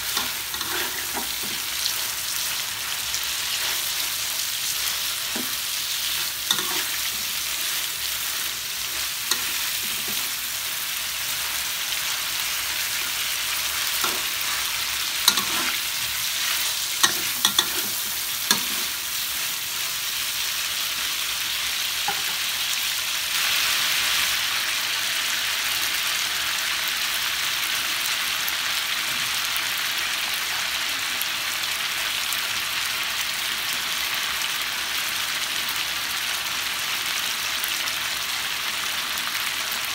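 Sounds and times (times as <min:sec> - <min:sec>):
meat sizzling in a wok: 0:00.0 - 0:39.9
metal spatula scraping pan: 0:00.1 - 0:01.8, 0:05.3 - 0:07.4, 0:15.2 - 0:16.0, 0:17.0 - 0:19.0.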